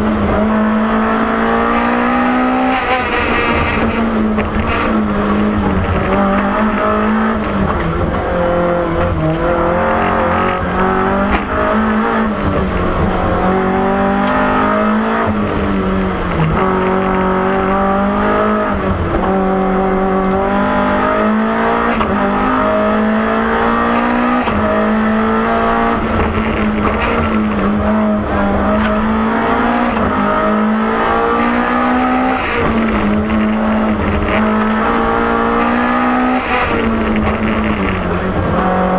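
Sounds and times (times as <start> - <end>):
race car engine shifting gears: 0.0 - 38.9.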